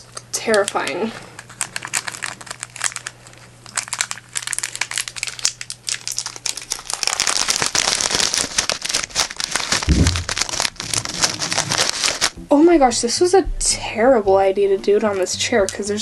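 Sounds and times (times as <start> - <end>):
plastic bags crinkling: 0.4 - 12.4
dull bump: 9.9 - 10.5.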